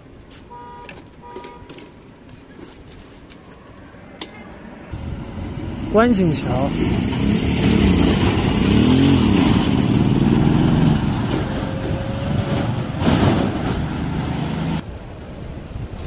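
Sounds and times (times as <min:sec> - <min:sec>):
motor tricycle engine running: 0:04.9 - 0:14.8
wind noise on microphone: 0:14.8 - 0:16.0.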